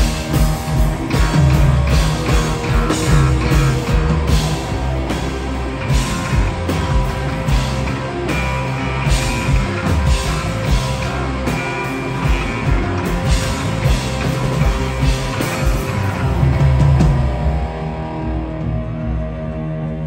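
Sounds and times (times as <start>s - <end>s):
drum and cymbal hits: 0.0s - 18.1s
amplified electric guitar: 0.0s - 20.0s.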